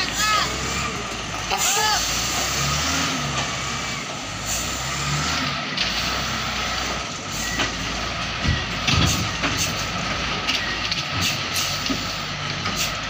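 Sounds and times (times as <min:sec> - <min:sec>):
wheel loader diesel engine running: 0:00.0 - 0:13.0.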